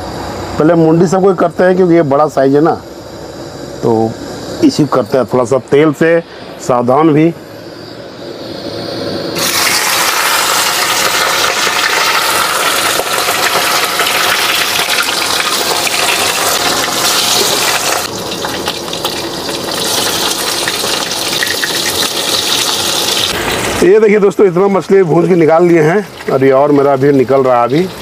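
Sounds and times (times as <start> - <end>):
fish sizzling in hot oil: 9.4 - 28.0.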